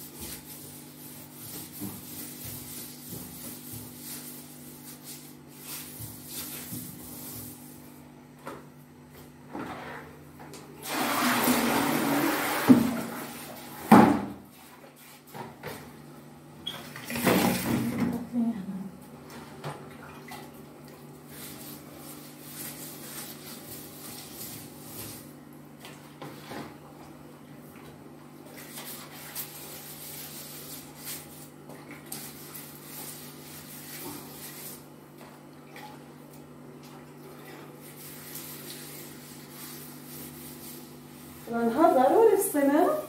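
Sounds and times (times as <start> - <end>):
wet cloth wiping tiles: 0.0 - 8.0, 20.9 - 26.7, 28.5 - 35.4, 36.8 - 43.0.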